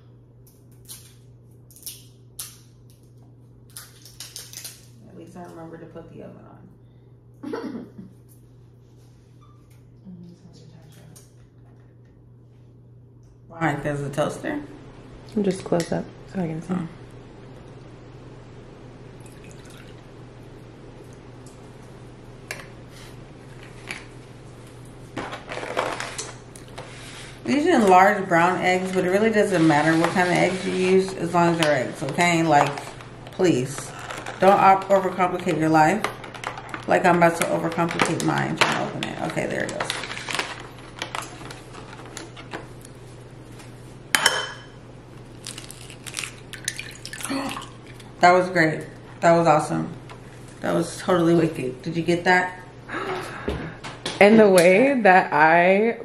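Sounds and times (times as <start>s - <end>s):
background hum: 0.0s - 56.0s
milk pouring into a bowl: 19.2s - 20.0s.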